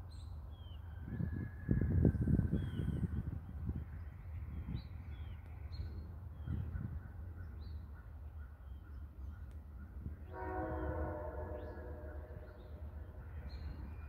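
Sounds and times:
distant locomotive horn blast: 10.2 - 13.8.

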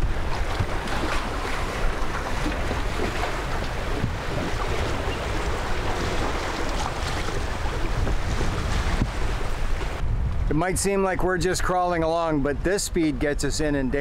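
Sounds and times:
water rushing along boat hull: 0.0 - 10.0
wind buffeting microphone: 0.0 - 14.0.

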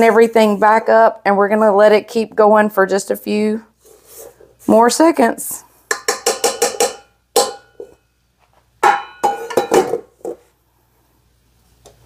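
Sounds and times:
metal bowl ringing: 5.9 - 8.0, 8.8 - 9.8.

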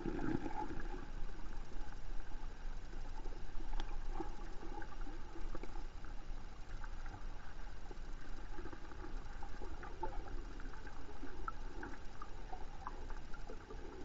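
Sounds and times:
muffled underwater moving water: 0.0 - 14.0
small clicks and pops: 3.7 - 4.3.

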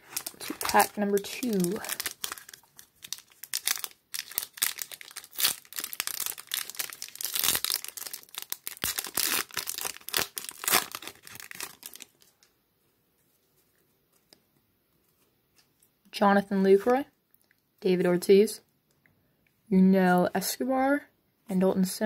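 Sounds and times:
foil wrapper tearing and crinkling: 0.0 - 12.2.

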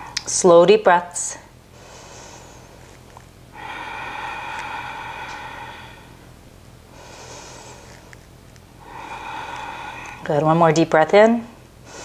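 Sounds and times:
woman breathing deeply: 1.7 - 10.5, 11.5 - 12.0.

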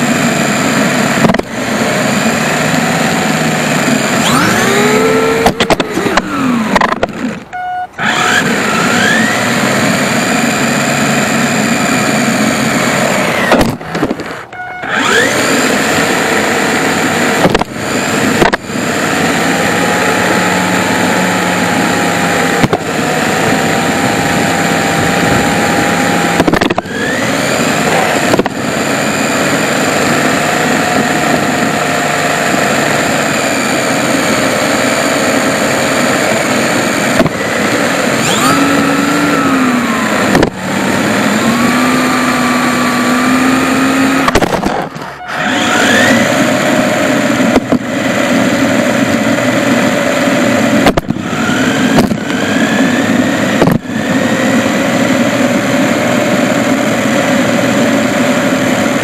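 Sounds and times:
small electric motor whining: 0.0 - 59.0
tyre noise on concrete: 44.0 - 46.3.

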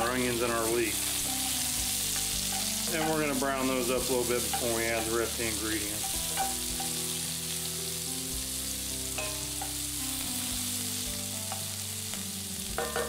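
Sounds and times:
onions sizzling in oil: 0.0 - 13.0
wooden spoon tapping pan: 6.0 - 7.0, 12.8 - 13.0.

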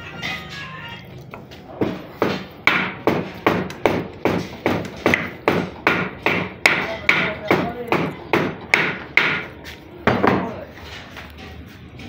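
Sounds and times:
hammer striking metal: 1.8 - 10.5.

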